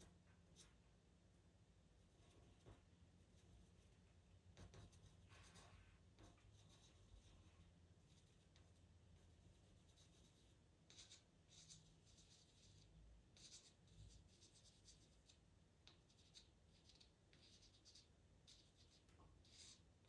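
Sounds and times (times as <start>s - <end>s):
pencil scratching on paper: 4.6s - 7.5s, 8.1s - 19.9s.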